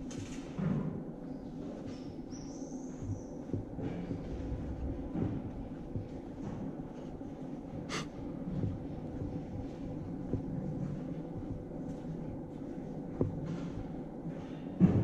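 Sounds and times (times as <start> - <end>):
low steady hum: 0.0 - 15.0
footsteps on stone pavement: 8.6 - 15.0.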